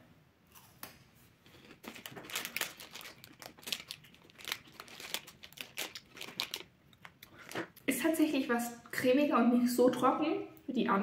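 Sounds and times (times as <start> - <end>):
wafer snack crackling: 1.5 - 7.9.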